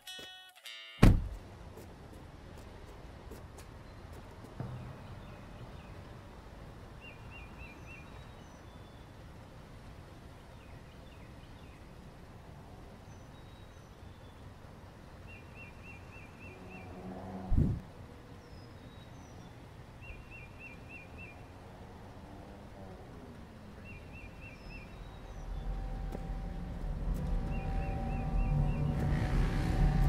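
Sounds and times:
sudden loud hit: 0:01.0 - 0:01.3
low outdoor rumble: 0:01.2 - 0:30.0
small birds chirping: 0:03.6 - 0:17.5, 0:18.3 - 0:30.0
low pitched hum: 0:24.6 - 0:30.0.

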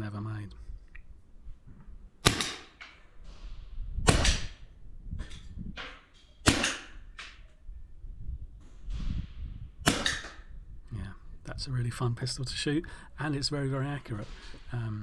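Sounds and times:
air pistol shots: 0:02.2 - 0:04.7, 0:05.8 - 0:07.4, 0:08.7 - 0:10.5.

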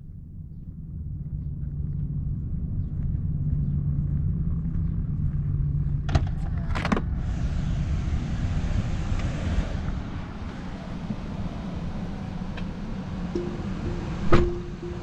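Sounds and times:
wind noise on microphone: 0:07.0 - 0:12.0.

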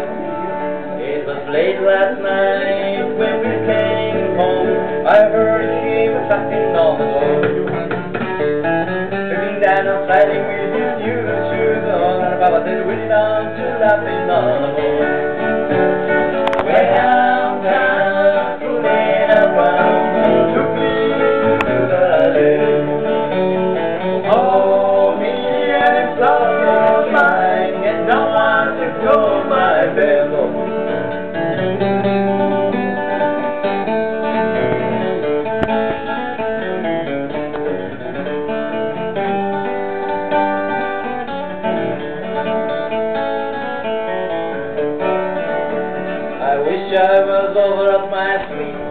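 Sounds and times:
man singing: 0:00.0 - 0:07.9, 0:09.1 - 0:31.2, 0:46.0 - 0:48.9
acoustic guitars playing: 0:00.0 - 0:48.9.

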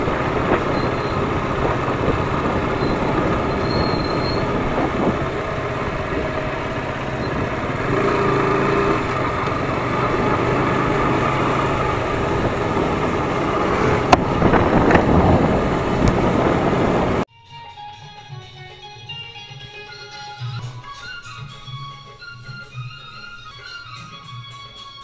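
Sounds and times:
vehicle engine rumble: 0:00.0 - 0:17.3.

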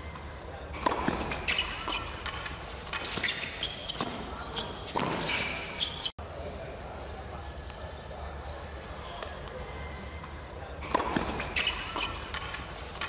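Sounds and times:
racquets striking tennis ball: 0:00.7 - 0:06.1, 0:10.8 - 0:13.0
sneaker squeaks on court: 0:00.8 - 0:06.1, 0:10.8 - 0:12.7.

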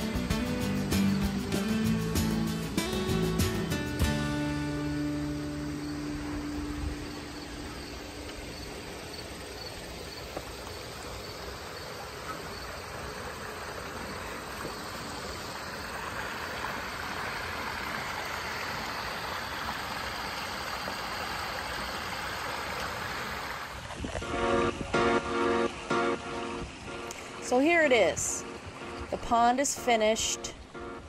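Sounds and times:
water rushing over waterfall: 0:12.8 - 0:30.6.

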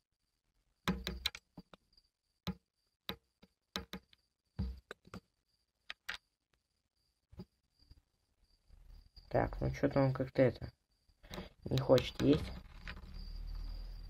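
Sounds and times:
cricket chirping: 0:00.0 - 0:14.0
sharp clicks and taps: 0:00.9 - 0:01.8, 0:02.4 - 0:05.3, 0:11.2 - 0:12.6.

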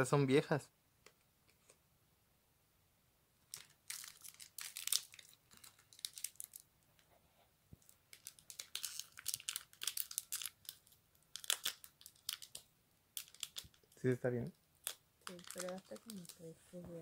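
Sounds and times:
foil wrapper crinkling and tearing: 0:03.5 - 0:06.7, 0:07.8 - 0:12.6, 0:13.2 - 0:14.0, 0:14.8 - 0:16.6.

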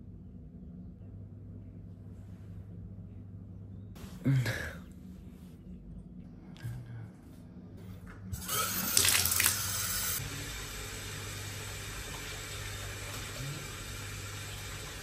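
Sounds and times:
tap water running into bathtub: 0:08.4 - 0:15.0.

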